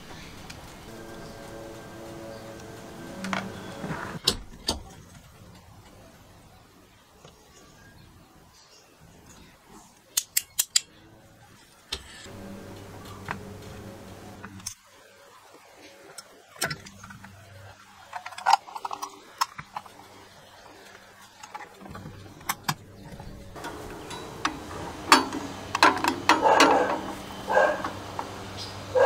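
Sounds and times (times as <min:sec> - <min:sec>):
clicks and knocks of small parts: 0:10.1 - 0:10.9, 0:18.0 - 0:20.1.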